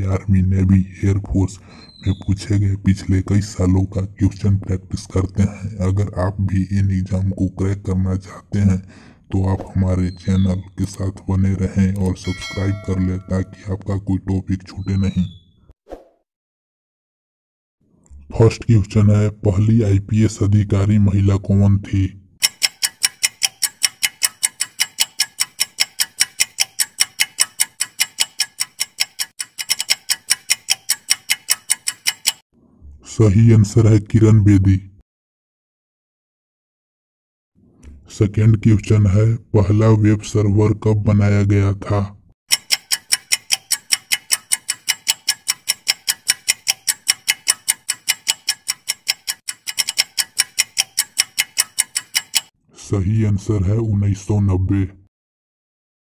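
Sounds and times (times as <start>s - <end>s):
countdown timer ticking: 12.0s - 13.9s, 22.4s - 32.4s, 42.5s - 52.5s.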